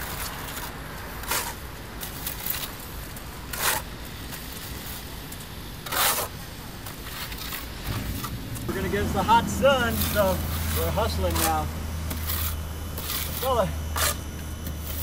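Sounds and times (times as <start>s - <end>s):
steel trowel scraping: 0.1s - 2.8s, 3.5s - 3.9s, 5.8s - 8.3s, 9.5s - 15.0s
low rumble: 7.8s - 13.9s.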